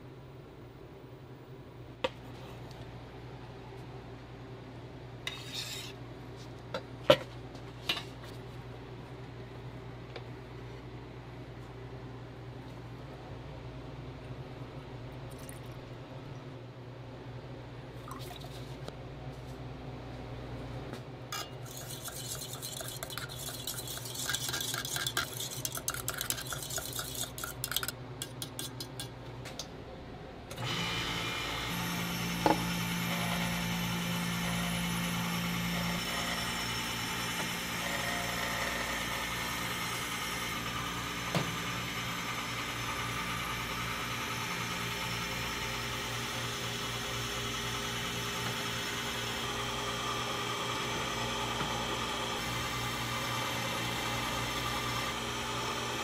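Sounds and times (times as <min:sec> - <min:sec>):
shaved-ice machine running: 0:30.6 - 0:56.0.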